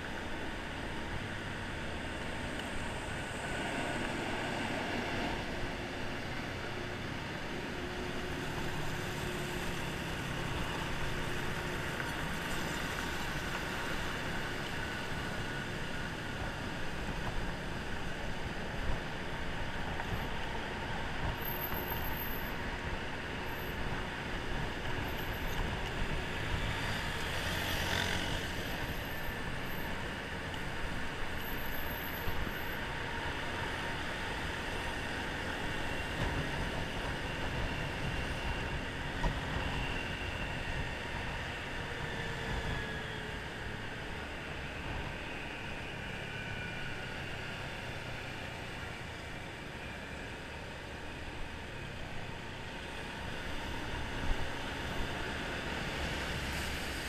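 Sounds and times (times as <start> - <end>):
surrounding traffic: 0.0 - 57.0
wind: 0.0 - 57.0.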